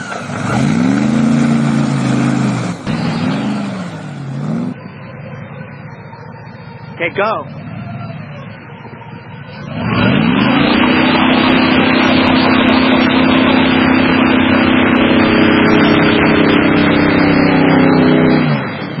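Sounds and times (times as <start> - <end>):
airboat engine and propeller: 10.6 - 19.0.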